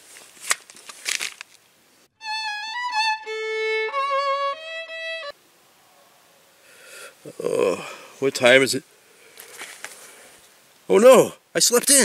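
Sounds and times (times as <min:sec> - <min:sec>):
solo violin phrase: 0:02.2 - 0:05.4.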